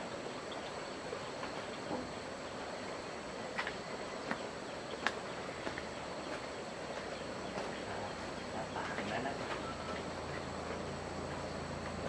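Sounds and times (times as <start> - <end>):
high insect drone: 0.0 - 12.0.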